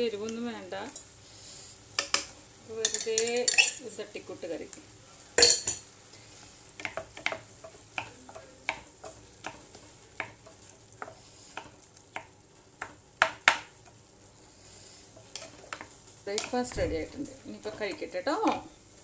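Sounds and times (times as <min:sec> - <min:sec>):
faint oil sizzle: 0:00.0 - 0:19.0
wooden spatula tapping frying pan: 0:02.0 - 0:03.5, 0:06.7 - 0:14.0, 0:15.2 - 0:18.7.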